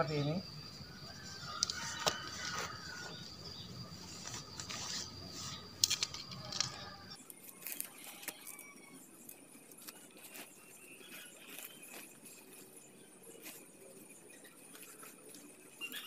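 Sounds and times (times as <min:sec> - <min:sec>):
tent pole clicks and scrapes: 0:01.4 - 0:12.7.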